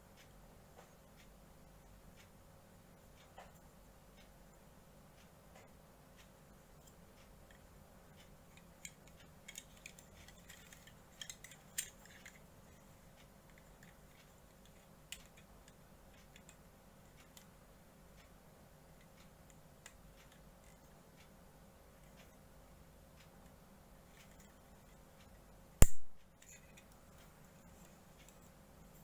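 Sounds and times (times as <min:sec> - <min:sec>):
faint steady hum: 0:00.0 - 0:29.0
plastic parts clicking and tapping: 0:08.2 - 0:17.5.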